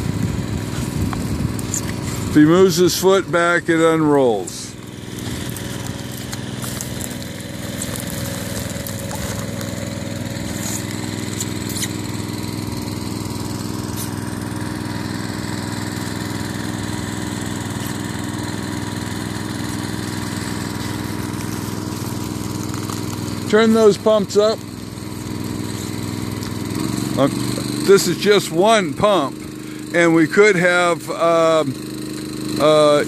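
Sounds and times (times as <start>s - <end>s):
small water pump engine running: 0.0s - 33.0s.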